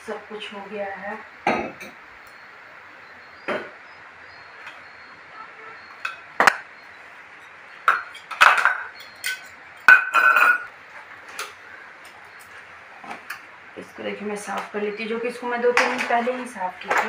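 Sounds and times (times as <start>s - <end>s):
steel containers clinking: 7.9s - 10.7s.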